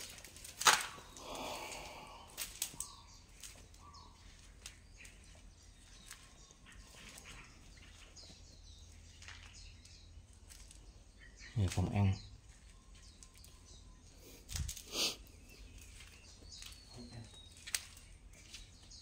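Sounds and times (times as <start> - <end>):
animal or bird chirps at night: 1.2 - 8.0.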